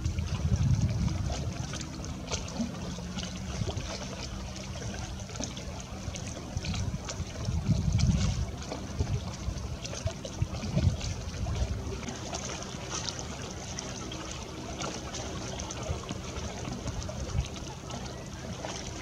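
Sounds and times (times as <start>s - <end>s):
low rumble: 0.0s - 14.5s
lake water lapping: 0.0s - 19.0s
small splashes: 0.0s - 19.0s.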